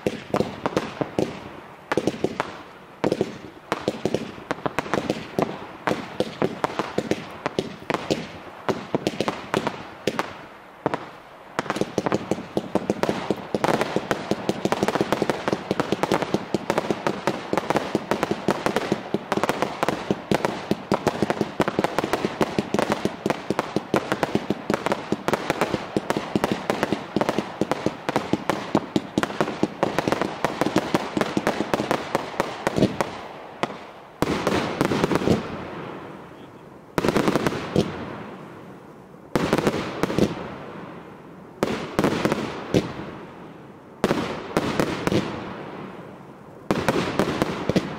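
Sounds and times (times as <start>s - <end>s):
fireworks bangs and crackling: 0.0s - 47.9s.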